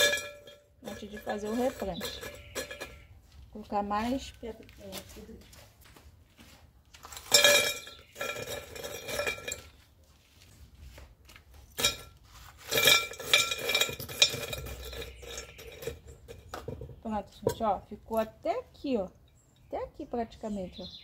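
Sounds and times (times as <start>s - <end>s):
gravel rattling into clay pot: 0.0s - 3.2s, 6.9s - 9.9s, 11.3s - 19.7s.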